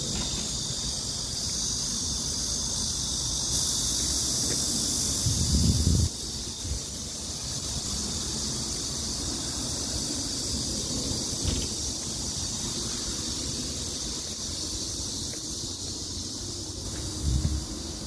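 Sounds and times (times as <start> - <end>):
steady high hiss: 0.0 - 18.0
wind buffeting microphone: 5.0 - 7.0, 17.0 - 17.8.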